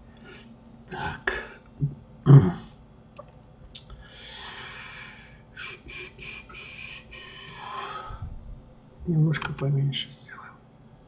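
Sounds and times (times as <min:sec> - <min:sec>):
man breathing: 0:04.0 - 0:08.5.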